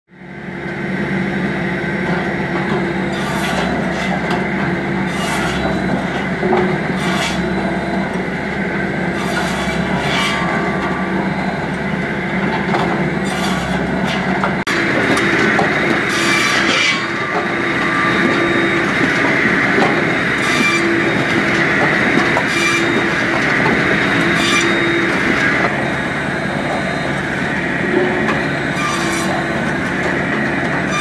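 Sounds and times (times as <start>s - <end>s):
circular saw running: 0.3s - 31.0s
saw blade rasping through log: 3.1s - 4.3s, 5.1s - 5.7s, 6.9s - 7.5s, 9.1s - 10.9s, 13.2s - 14.3s, 16.0s - 21.2s, 28.7s - 29.6s, 30.8s - 31.0s.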